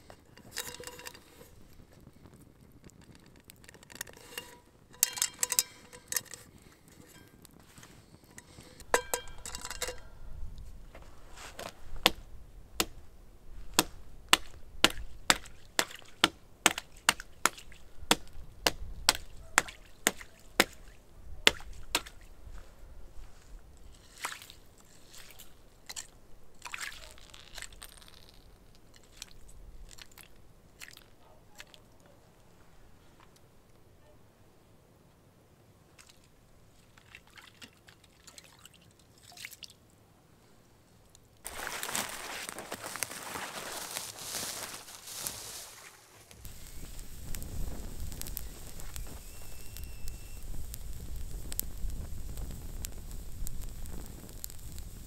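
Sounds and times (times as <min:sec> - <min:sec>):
metal pot clinking: 0:00.3 - 0:01.6, 0:03.6 - 0:07.5, 0:08.3 - 0:10.2
broken ice crunching and sloshing: 0:24.0 - 0:31.1, 0:41.5 - 0:45.6.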